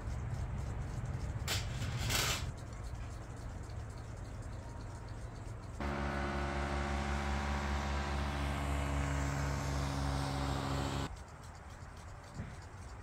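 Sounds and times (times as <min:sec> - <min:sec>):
paramotor engine buzzing: 0:05.8 - 0:11.1.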